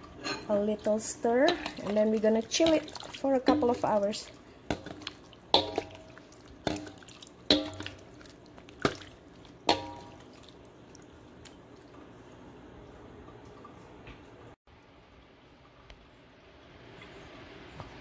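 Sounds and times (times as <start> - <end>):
liquid sloshing in a bowl: 0.5 - 12.2.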